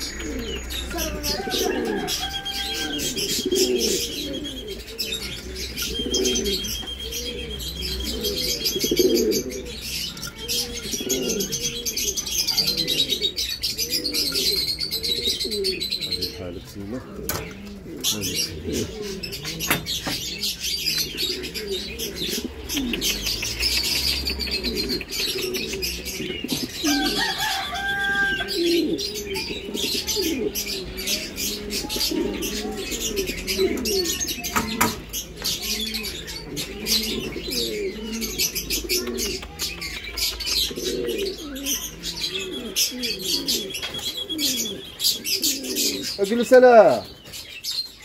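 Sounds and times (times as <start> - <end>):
birds rustling and clicking: 0.0 - 2.6, 19.3 - 28.3, 38.5 - 42.0, 43.6 - 44.5
pigeons cooing: 0.0 - 48.0.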